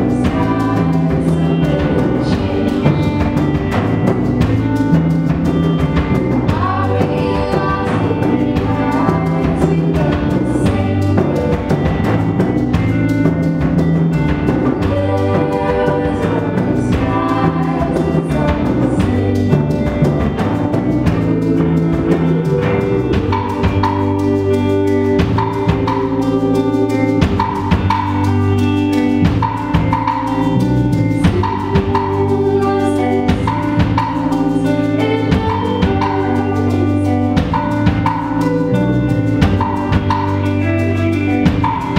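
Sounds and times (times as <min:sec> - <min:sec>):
women singing: 0:00.0 - 0:03.4, 0:06.3 - 0:12.4, 0:14.5 - 0:28.2, 0:31.1 - 0:38.2
bass guitar: 0:00.0 - 0:41.9
drum kit beat: 0:00.0 - 0:41.9
electric guitars: 0:00.0 - 0:41.9.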